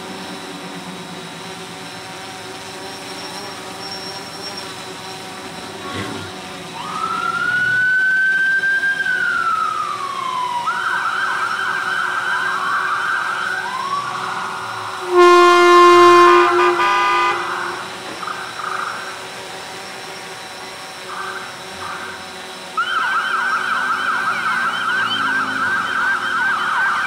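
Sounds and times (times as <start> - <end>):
emergency vehicle sirens: 4.7 - 27.0
loud horn blast: 13.6 - 18.4.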